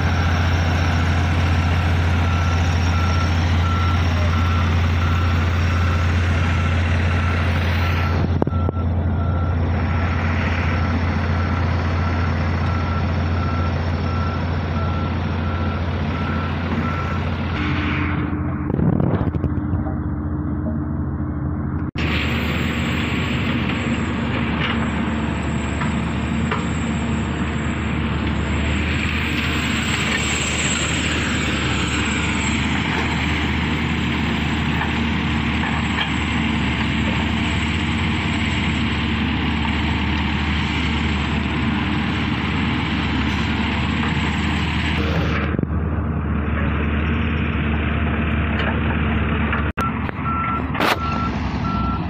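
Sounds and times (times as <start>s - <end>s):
diesel engine running: 0.0s - 52.0s.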